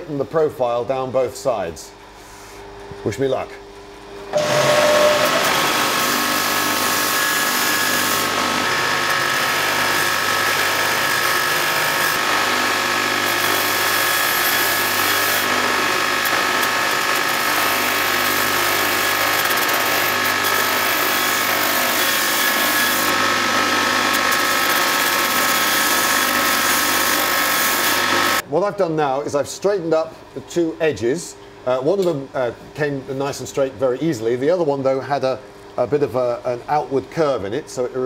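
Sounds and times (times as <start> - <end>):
belt grinder grinding steel: 4.4 - 28.4.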